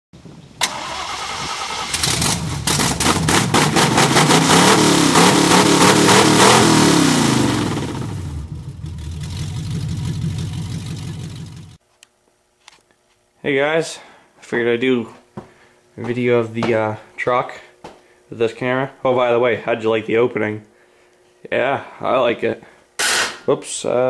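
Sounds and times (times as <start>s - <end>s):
engine starting and revving: 0.6s - 11.8s.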